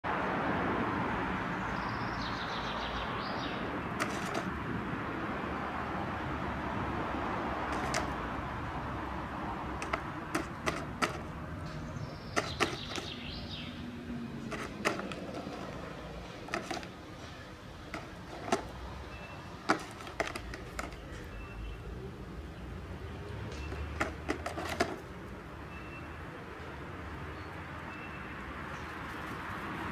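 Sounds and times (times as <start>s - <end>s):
beak pecking on plastic: 4.0s - 4.6s, 7.7s - 8.2s, 9.7s - 11.3s, 12.2s - 13.4s, 14.4s - 15.7s, 16.4s - 17.0s, 19.6s - 21.2s, 23.6s - 25.0s.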